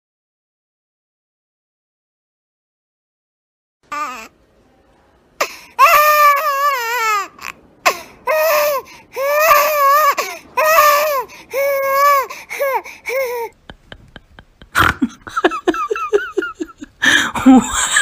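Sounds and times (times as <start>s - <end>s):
baby crying: 3.9s - 4.3s, 5.4s - 13.6s.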